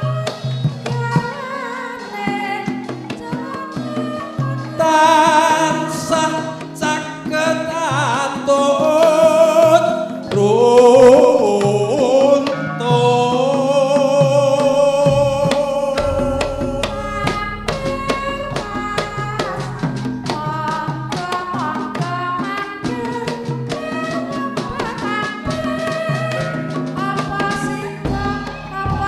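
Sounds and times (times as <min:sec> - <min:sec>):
person singing with vibrato: 0:01.2 - 0:29.0
ringing metallophone notes: 0:12.7 - 0:22.5
low drum strokes: 0:14.5 - 0:22.0.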